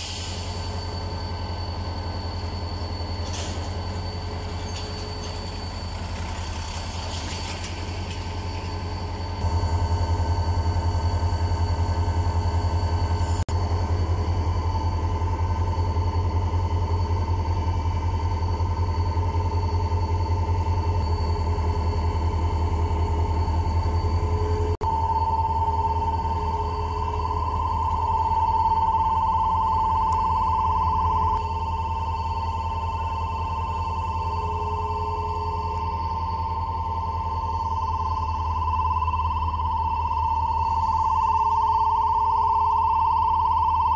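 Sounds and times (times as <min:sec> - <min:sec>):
diesel locomotive rumbling: 0:00.0 - 0:41.8
crossing warning alarm tone: 0:00.0 - 0:43.9.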